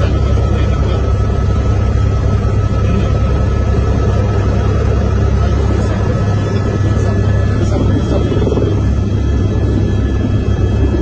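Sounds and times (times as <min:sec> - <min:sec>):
helicopter rotor and engine rumble: 0:00.0 - 0:11.0
thin steady whine: 0:00.0 - 0:11.0.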